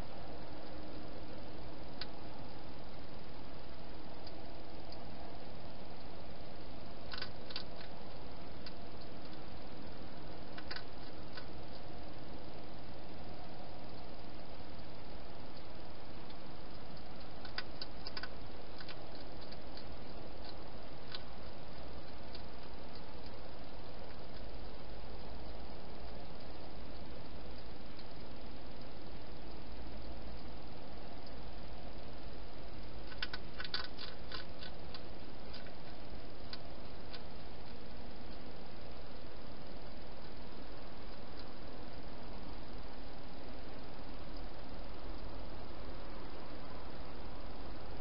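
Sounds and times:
microphone hiss: 0.0s - 48.0s
hedgehog crunching food: 7.0s - 9.4s, 10.5s - 11.9s, 16.3s - 28.8s, 32.8s - 38.4s.

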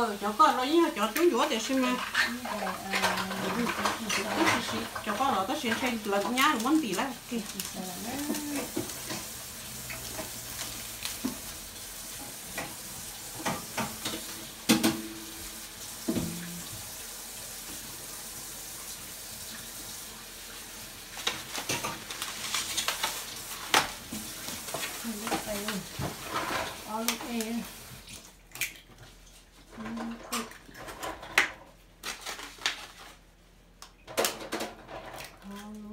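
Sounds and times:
tap running into sink: 16.0s - 16.9s.

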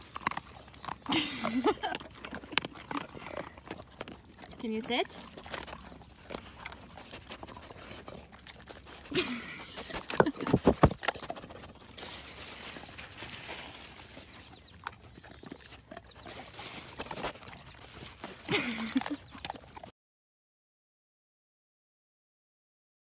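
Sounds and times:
puppies rustling on grass: 4.6s - 19.4s.

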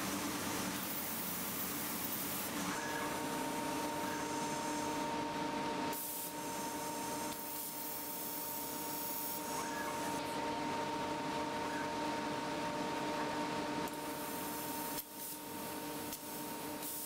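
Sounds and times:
plasma torch arc hissing: 0.0s - 5.1s, 5.9s - 10.2s, 13.9s - 17.0s
machine hum: 0.0s - 16.8s.

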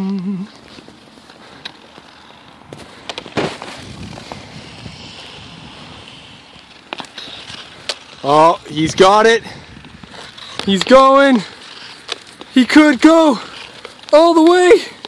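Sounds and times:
ice skate blades scraping ice: 0.4s - 15.0s
wind on microphone: 3.6s - 6.6s, 8.5s - 10.7s.

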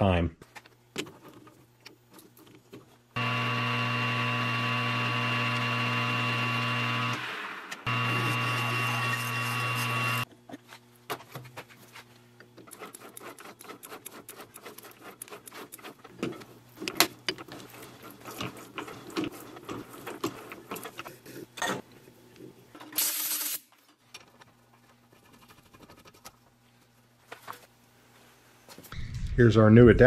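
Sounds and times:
hand tools scraping metal: 7.9s - 10.3s, 12.6s - 16.5s.

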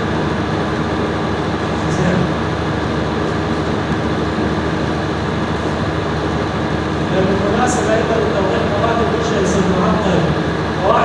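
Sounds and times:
loudspeaker hiss and hum: 0.0s - 11.0s
faint amplified man's voice: 1.7s - 2.6s, 7.0s - 11.0s.

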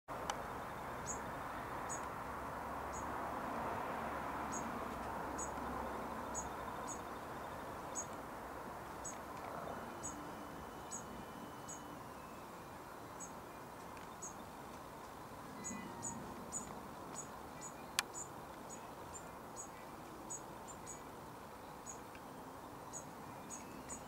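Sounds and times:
outdoor background noise: 0.1s - 24.0s
bird high-pitched call notes: 15.5s - 18.8s.

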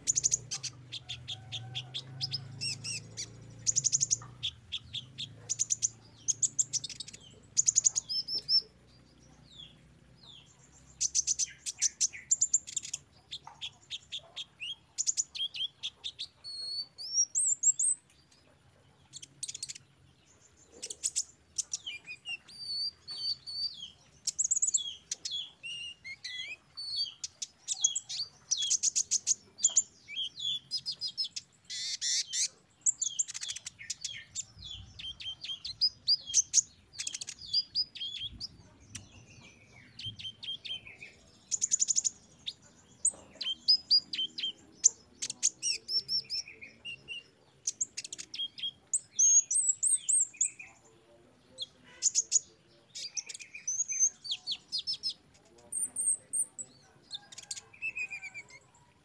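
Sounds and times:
sunbird singing: 0.0s - 59.0s.

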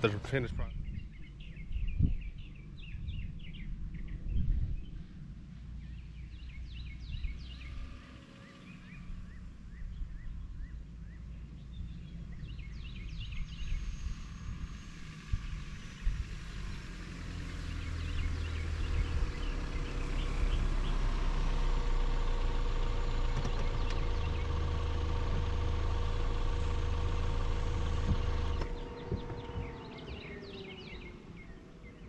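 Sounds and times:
low rumble: 0.0s - 7.9s, 17.4s - 32.0s
small birds chirping: 0.0s - 32.0s
dull thumps: 28.0s - 29.7s.

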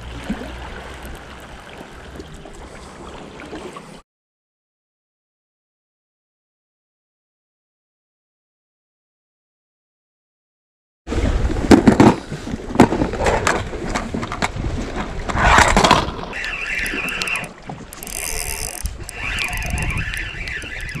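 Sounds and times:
spinning reel whirring: 16.6s - 21.0s.

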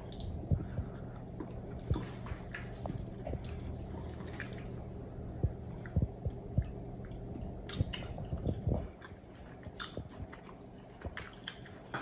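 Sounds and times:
dull low thumps: 0.0s - 2.1s, 4.8s - 9.0s
soft chewing: 0.0s - 12.0s
steady low hum: 0.0s - 12.0s.

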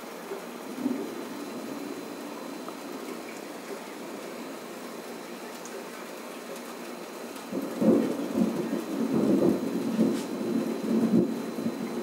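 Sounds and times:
steady rain falling: 0.0s - 12.0s
rolling thunder rumble: 0.6s - 4.7s, 7.4s - 12.0s.

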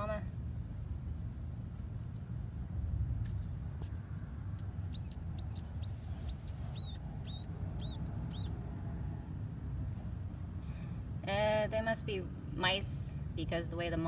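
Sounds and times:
mouse squeaking: 4.9s - 8.5s.

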